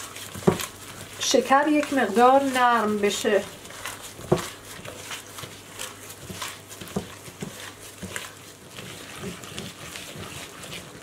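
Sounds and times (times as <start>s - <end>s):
dough squelching: 0.0s - 11.0s.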